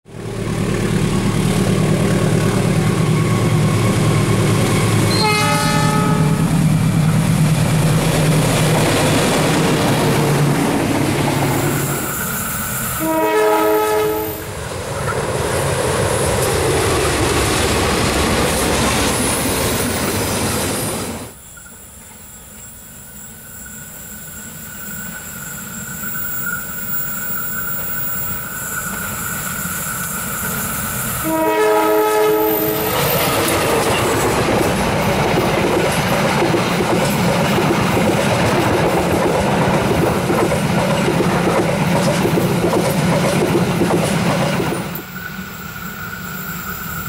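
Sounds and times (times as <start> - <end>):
diesel locomotive engine droning: 0.0 - 47.0
high wheel squeal: 1.4 - 6.7, 8.5 - 14.5, 19.0 - 31.5, 32.1 - 34.4, 44.8 - 47.0
train horn: 5.1 - 6.6, 12.9 - 14.5, 31.2 - 33.0
wheel-on-rail noise: 32.1 - 47.0.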